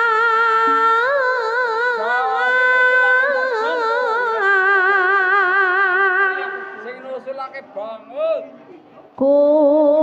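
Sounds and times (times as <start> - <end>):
woman singing solo with vibrato: 0.0 - 6.5, 9.2 - 10.0.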